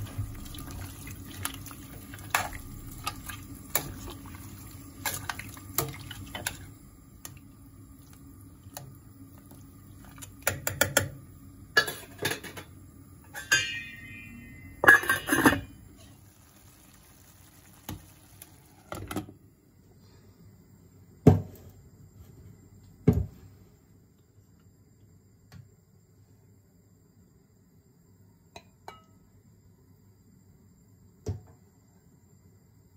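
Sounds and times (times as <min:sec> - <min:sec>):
metal lid ringing and clattering: 0:13.3 - 0:15.8.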